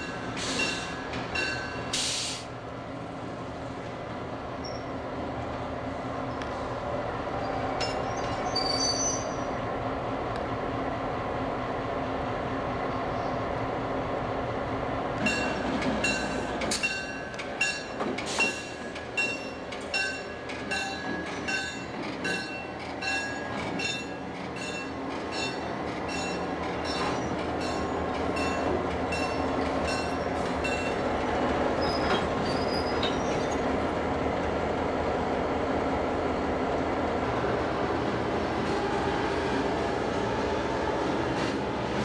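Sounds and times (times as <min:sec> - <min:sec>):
locomotive bell ringing: 0:00.0 - 0:02.0, 0:15.2 - 0:31.1
diesel locomotive engine rumble: 0:00.0 - 0:42.0
brief high squeals: 0:08.2 - 0:09.5.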